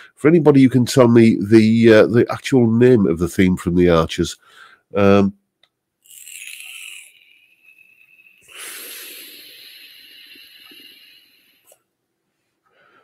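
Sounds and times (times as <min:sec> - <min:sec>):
vape pen hissing: 0:06.0 - 0:11.8.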